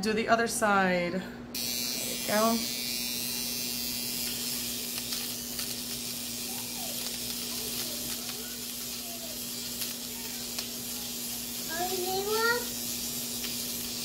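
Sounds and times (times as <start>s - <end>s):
electric trimmer humming: 1.6s - 14.0s.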